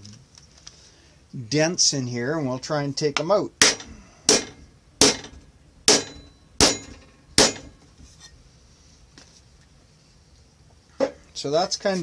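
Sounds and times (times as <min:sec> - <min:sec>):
hammer striking sheet metal: 0:03.6 - 0:07.8.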